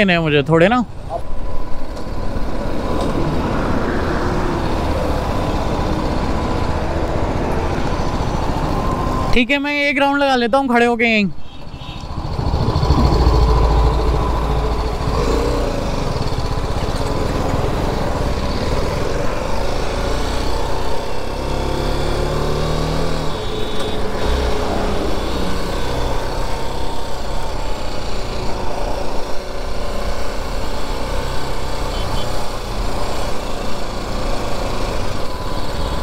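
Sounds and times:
motorcycle engine accelerating: 11.6 - 36.0.

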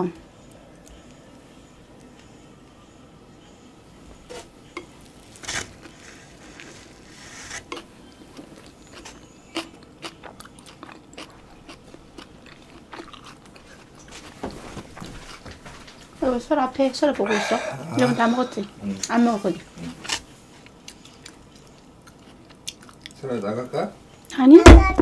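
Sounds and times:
chewing and mouth smacks: 7.7 - 14.4, 20.6 - 23.2.

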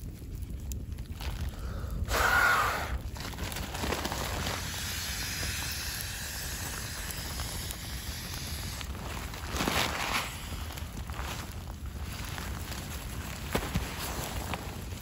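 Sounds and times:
rush of air: 1.2 - 12.8.

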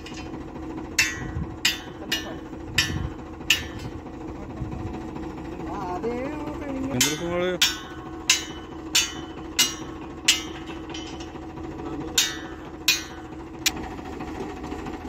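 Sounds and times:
hammer striking metal: 0.0 - 4.0, 6.9 - 13.4
tractor engine idling: 0.0 - 15.0.

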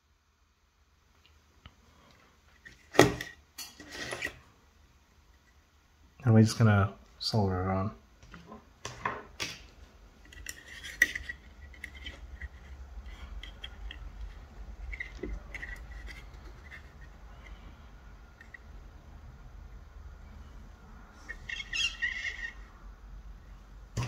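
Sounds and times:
metal scraping: 2.6 - 4.4, 10.2 - 17.8.

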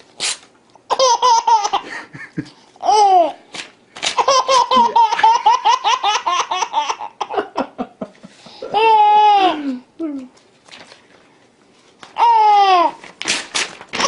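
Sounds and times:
paper tearing: 0.0 - 0.5, 12.9 - 14.0
baby laughing: 0.9 - 2.0, 2.8 - 3.4, 4.1 - 7.7, 8.6 - 9.7, 12.2 - 13.0.

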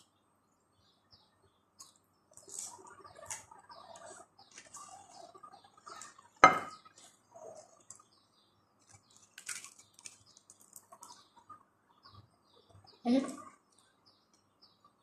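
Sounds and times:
food scraping and rustling: 2.3 - 8.1, 8.8 - 11.2
cutlery clinking on plates: 6.4 - 6.8.

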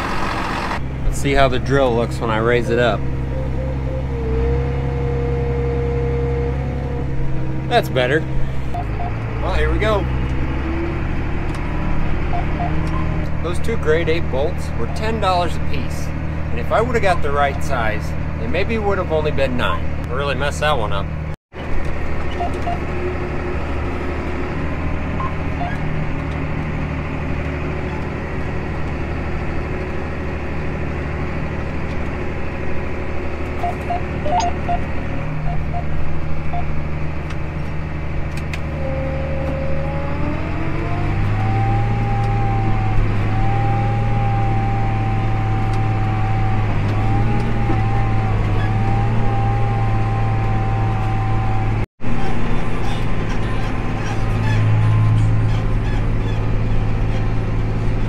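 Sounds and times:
rising whine: 0.0 - 15.9, 38.5 - 52.6
tractor engine running: 0.0 - 58.0.

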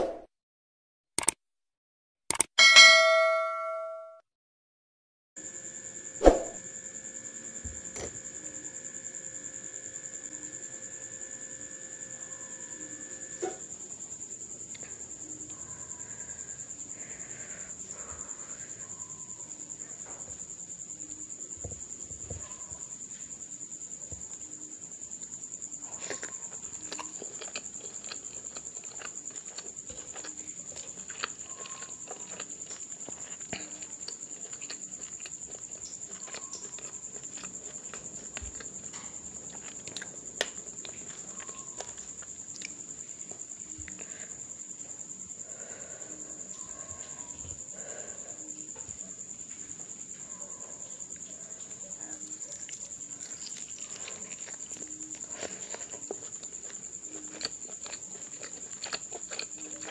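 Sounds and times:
steady high-pitched tone: 2.6 - 4.2
person chewing food: 25.1 - 49.0, 50.8 - 59.9.

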